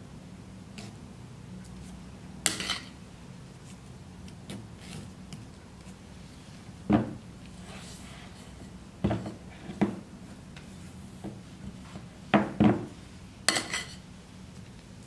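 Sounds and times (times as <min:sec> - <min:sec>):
metal spatula scraping: 0:02.5 - 0:03.0.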